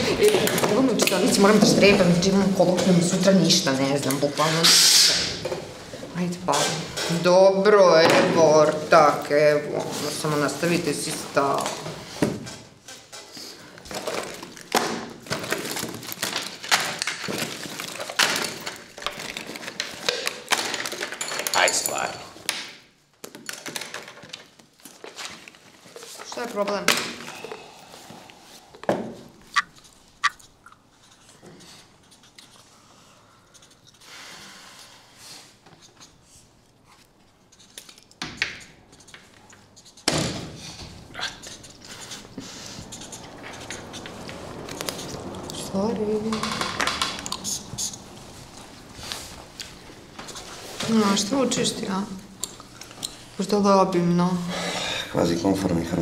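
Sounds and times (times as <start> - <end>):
objects clattering on a desk: 11.6 - 27.6, 46.3 - 47.6.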